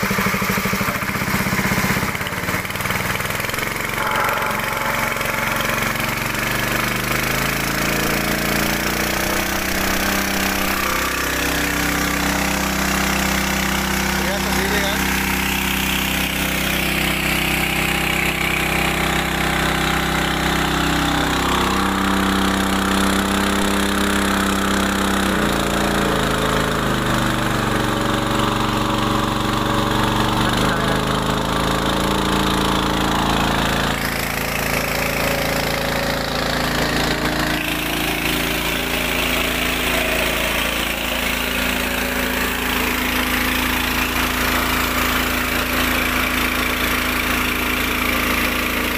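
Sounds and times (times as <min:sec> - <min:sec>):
small petrol engine running: 0:00.0 - 0:48.9
water gushing from pump: 0:00.0 - 0:48.9.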